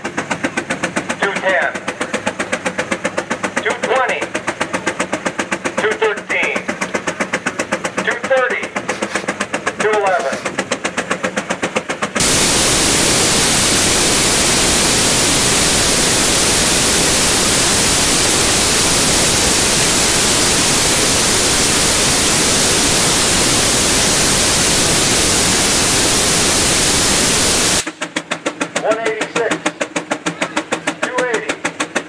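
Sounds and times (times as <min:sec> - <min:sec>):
steam venting hiss: 0:12.2 - 0:27.9.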